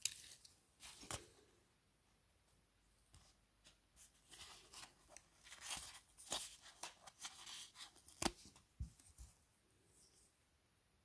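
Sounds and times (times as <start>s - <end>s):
paper sticker sheet rustling: 4.0s - 9.4s.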